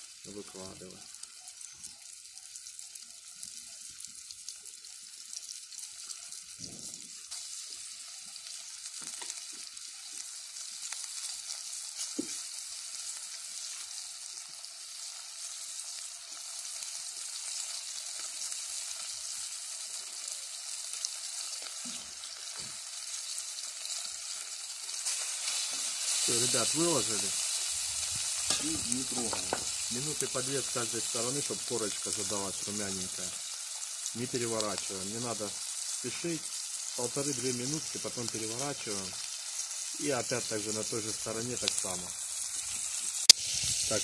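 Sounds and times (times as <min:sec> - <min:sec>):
fish sizzling in hot oil: 0:00.0 - 0:44.0.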